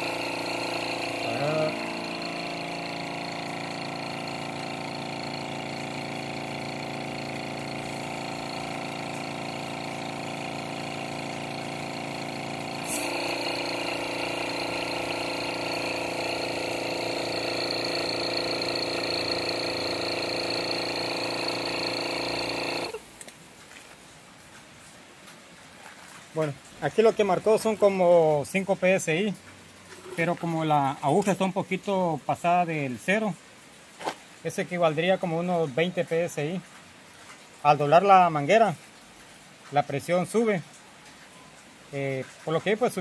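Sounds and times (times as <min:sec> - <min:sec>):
compressor click: 0:00.0 - 0:23.0
air compressor running: 0:00.0 - 0:23.1.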